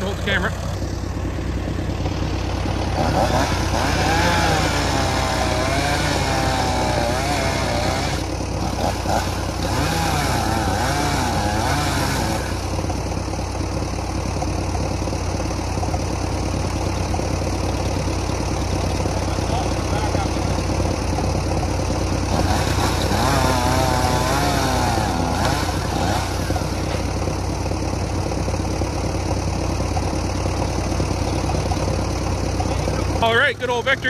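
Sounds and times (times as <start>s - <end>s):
tractor engine idling: 0.0s - 34.0s.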